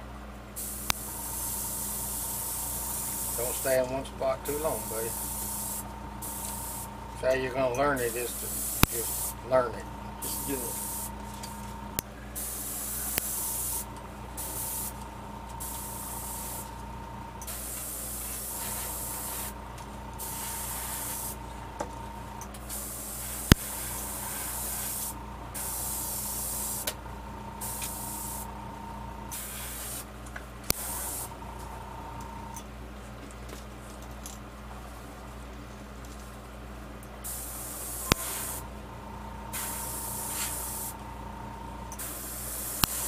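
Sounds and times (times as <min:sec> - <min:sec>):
faint steady whine: 0:00.0 - 0:43.0
airbrush spraying hiss: 0:00.6 - 0:03.8, 0:04.4 - 0:07.0, 0:08.0 - 0:09.4, 0:10.2 - 0:11.7, 0:12.4 - 0:15.0, 0:15.6 - 0:16.8, 0:17.4 - 0:19.6, 0:20.2 - 0:21.4, 0:22.7 - 0:27.0, 0:27.6 - 0:28.5, 0:29.3 - 0:30.1, 0:30.7 - 0:31.4, 0:37.2 - 0:38.6, 0:39.5 - 0:41.0, 0:42.0 - 0:43.0.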